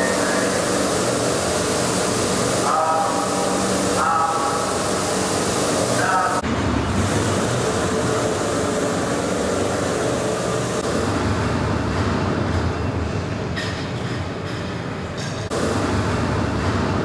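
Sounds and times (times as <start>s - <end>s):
wide hiss: 0.0s - 6.4s
machinery humming: 0.0s - 17.0s.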